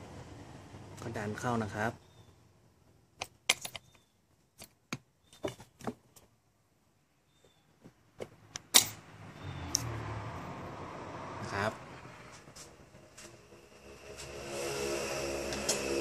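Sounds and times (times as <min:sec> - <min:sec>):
metallic clicks of bolt and washer: 0:03.2 - 0:04.0, 0:08.6 - 0:09.0.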